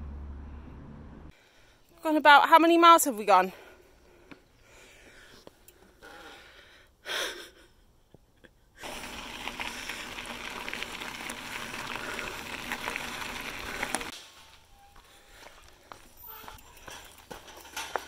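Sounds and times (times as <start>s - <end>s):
bike tyres crunching on gravel: 8.8s - 16.2s.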